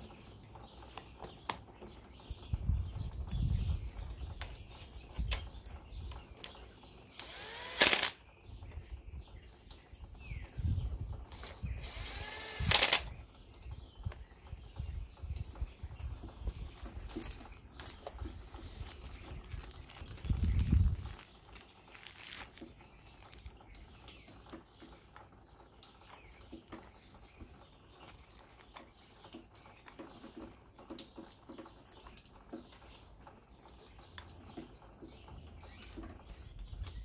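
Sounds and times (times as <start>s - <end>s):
electric screwdriver whirring: 7.2s - 8.2s, 11.4s - 13.1s.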